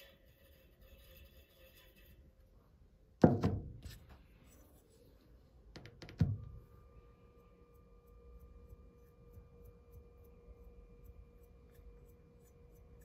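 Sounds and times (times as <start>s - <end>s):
faint steady tone: 6.3s - 13.0s.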